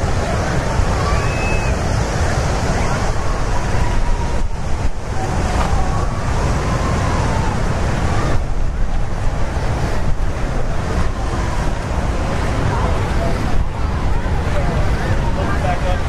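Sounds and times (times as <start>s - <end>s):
ocean surf breaking on beach: 0.0s - 16.0s
wind buffeting microphone: 0.0s - 16.0s.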